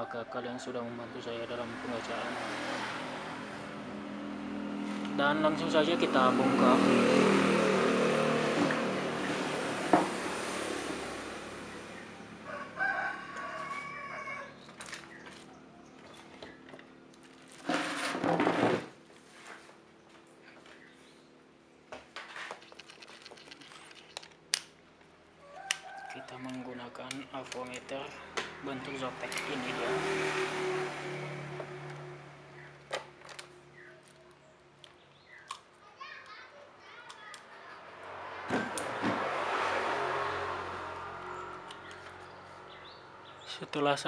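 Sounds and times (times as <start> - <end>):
rooster crowing: 12.3 - 14.7, 25.4 - 26.6.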